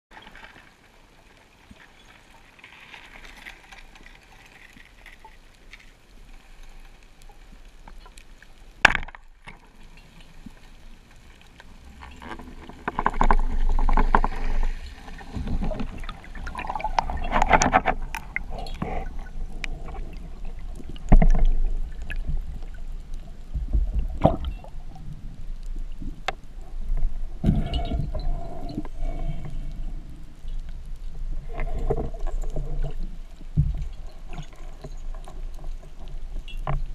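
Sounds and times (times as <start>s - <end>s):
rushing water underwater: 0.1s - 36.9s
speargun crack underwater: 8.8s - 9.6s.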